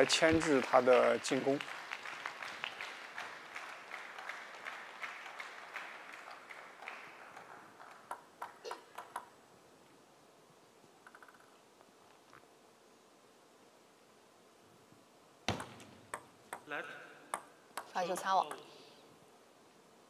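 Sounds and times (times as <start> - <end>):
people clapping: 0.0 - 9.3
table tennis ball bouncing: 7.3 - 9.4, 15.5 - 18.7.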